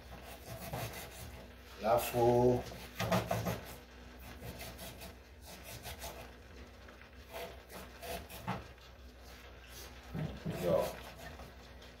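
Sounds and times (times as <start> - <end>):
knife slicing onion on board: 0.0 - 1.4, 2.7 - 6.3, 7.3 - 8.6.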